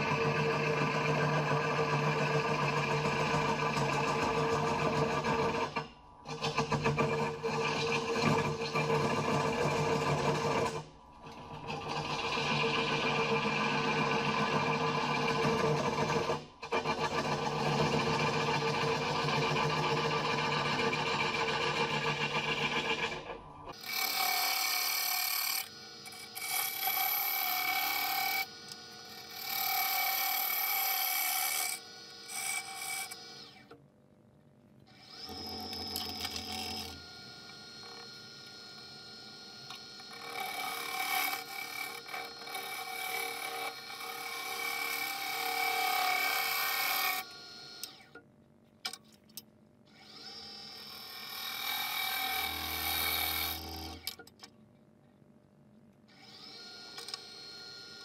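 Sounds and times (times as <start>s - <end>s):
gouge cutting wood on a lathe: 6.5s - 23.2s, 23.8s - 33.5s, 35.1s - 48.0s, 50.9s - 54.1s.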